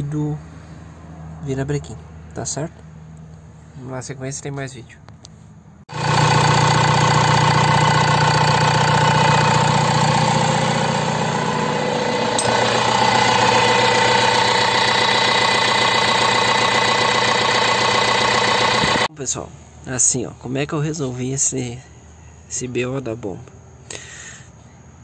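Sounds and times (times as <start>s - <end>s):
diesel engine idling: 5.9s - 19.1s.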